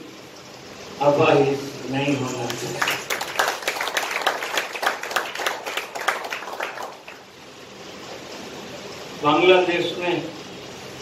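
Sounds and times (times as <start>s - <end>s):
audience applause: 2.5s - 7.3s.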